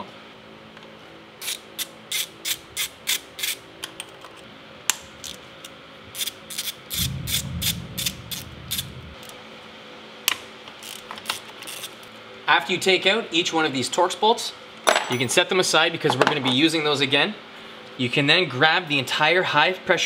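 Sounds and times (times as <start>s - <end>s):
low rumble: 6.9s - 9.5s.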